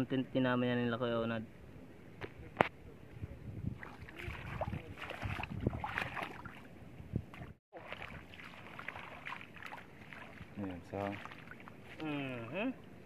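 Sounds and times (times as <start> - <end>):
footsteps splashing in water: 3.8 - 6.7, 7.3 - 12.1.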